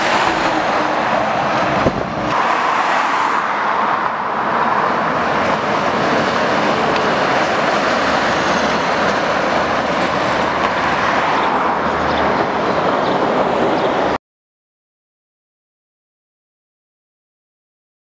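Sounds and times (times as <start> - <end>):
truck engine passing: 0.0 - 14.2.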